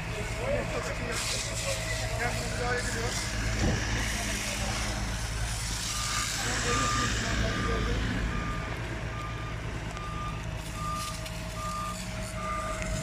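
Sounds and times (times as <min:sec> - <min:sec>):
truck engine humming: 0:00.0 - 0:13.0
reversing alarm beeping: 0:05.8 - 0:13.0.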